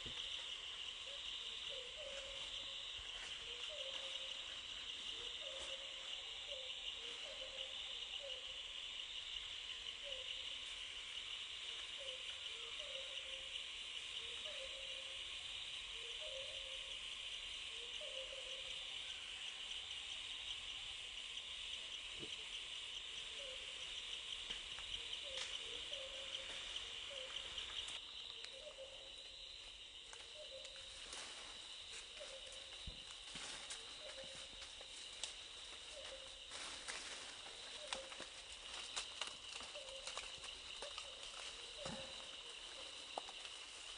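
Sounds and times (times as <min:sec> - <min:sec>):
high-pitched insect drone: 0:00.0 - 0:43.9.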